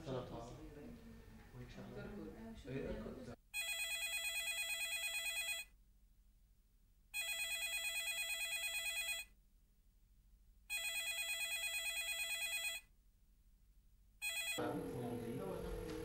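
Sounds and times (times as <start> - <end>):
telephone ringing: 3.6 - 5.7, 7.2 - 9.3, 10.7 - 12.9, 14.2 - 14.7.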